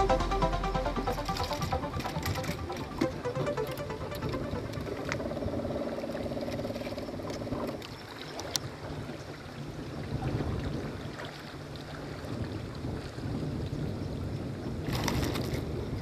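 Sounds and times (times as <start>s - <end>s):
water noise around boat: 0.0s - 16.0s
wind: 0.0s - 16.0s.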